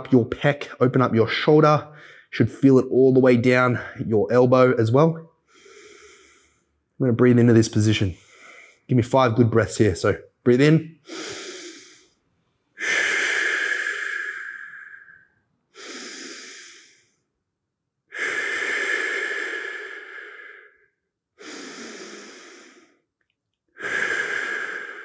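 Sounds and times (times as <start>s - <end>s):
man breathing deeply: 1.9s - 2.3s, 5.4s - 6.8s, 8.2s - 8.9s, 11.0s - 12.2s, 12.8s - 17.3s, 18.1s - 23.1s, 23.7s - 25.0s.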